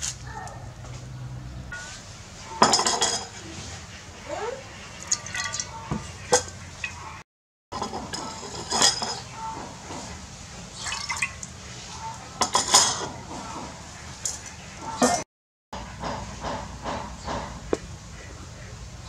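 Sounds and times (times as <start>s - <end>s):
liquid sloshing and splashing: 5.0s - 5.7s, 10.7s - 11.6s.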